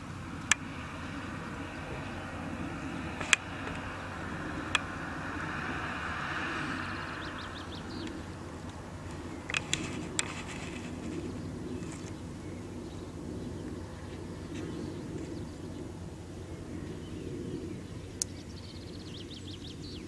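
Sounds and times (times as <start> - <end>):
low rumble: 0.0 - 20.0
bird chirps: 6.8 - 8.5, 9.1 - 20.0
sharp click: 9.5 - 10.3.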